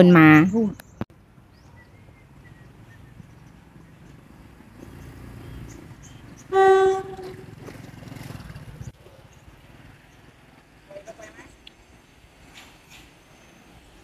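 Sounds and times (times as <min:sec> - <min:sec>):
train rumbling on track: 0:02.1 - 0:14.0
train horn blast: 0:06.5 - 0:07.6.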